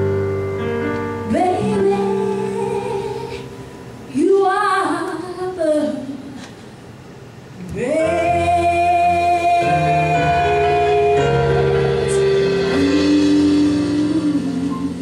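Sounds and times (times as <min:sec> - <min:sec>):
woman singing: 0:01.2 - 0:06.4, 0:07.6 - 0:15.0
live band playing: 0:07.7 - 0:15.0.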